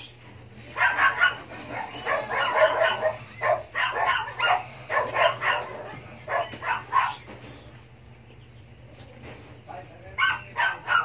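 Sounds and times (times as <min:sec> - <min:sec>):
steady low hum: 0:00.0 - 0:11.0
dog barking: 0:00.7 - 0:07.3, 0:10.2 - 0:11.0.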